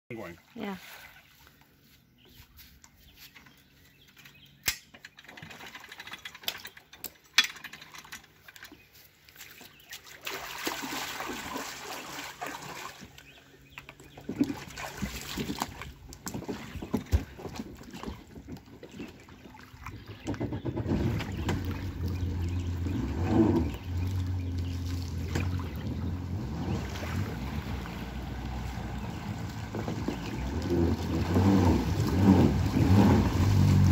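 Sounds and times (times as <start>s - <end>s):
splashing in shallow water: 0.1s - 1.8s, 5.2s - 33.9s
watercraft engine running: 11.7s - 33.9s.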